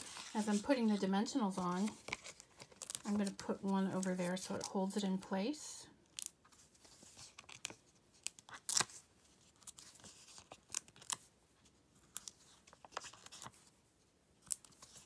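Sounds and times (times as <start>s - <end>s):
paper crackles: 0.0s - 4.8s.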